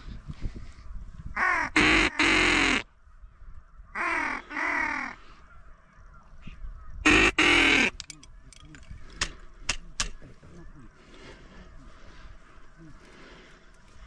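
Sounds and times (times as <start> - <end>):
duck quacking: 1.4 - 2.8, 7.0 - 8.0.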